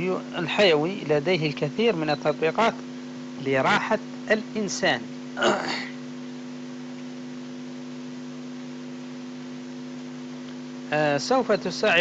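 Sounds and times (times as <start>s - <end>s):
electrical hum: 0.0s - 12.0s
man's voice: 3.4s - 5.6s, 10.9s - 12.0s.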